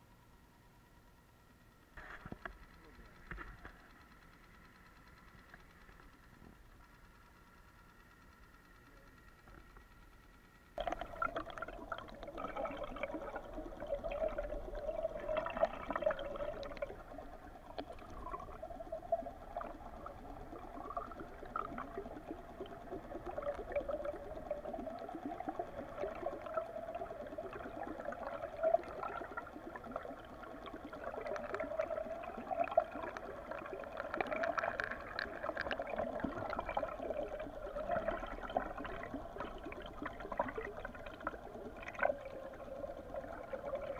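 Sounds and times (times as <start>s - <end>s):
small clicks and ticks: 0.0s - 43.9s
wavering hum: 0.0s - 43.9s
water rushing underwater: 10.8s - 43.9s.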